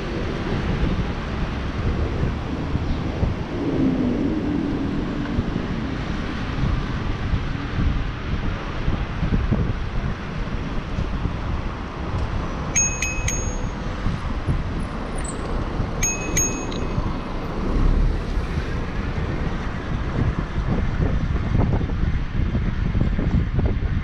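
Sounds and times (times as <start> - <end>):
wind rumbling on microphone: 0.0 - 24.0
bicycle bell dings: 12.7 - 14.0, 15.2 - 17.2.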